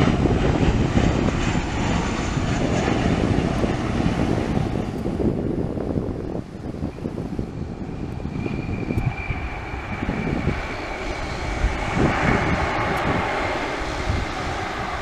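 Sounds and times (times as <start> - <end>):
jet engine whine: 0.0 - 15.0
rushing jet engine noise: 0.0 - 15.0.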